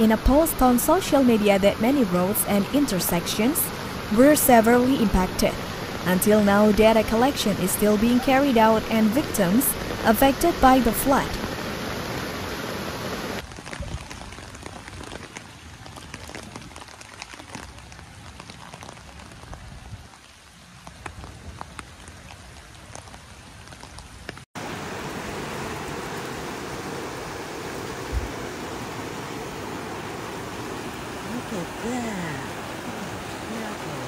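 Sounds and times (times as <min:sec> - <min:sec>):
rain falling on street: 0:00.0 - 0:34.0
rushing water: 0:00.0 - 0:34.0
raindrop ticks: 0:13.4 - 0:19.6, 0:20.2 - 0:24.4.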